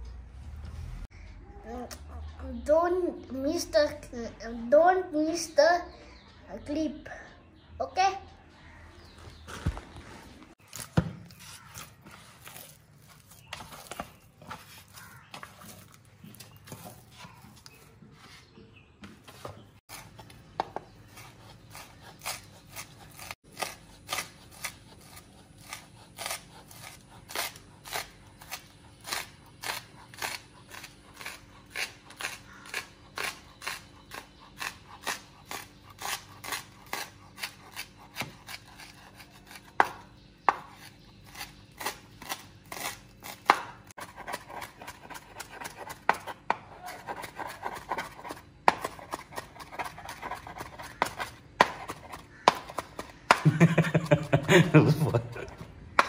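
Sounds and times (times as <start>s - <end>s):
knife chopping on cutting board: 27.4s - 53.5s.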